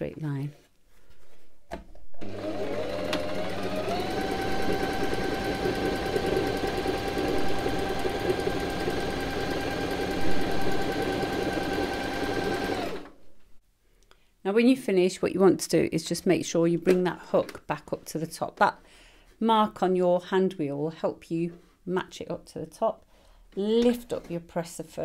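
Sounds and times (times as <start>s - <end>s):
electric sewing machine stitching: 2.2s - 13.2s.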